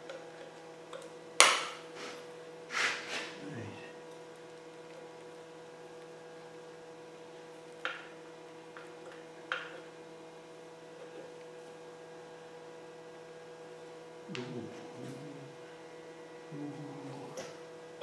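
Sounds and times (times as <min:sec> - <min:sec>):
faint electrical hum: 0:00.0 - 0:18.0.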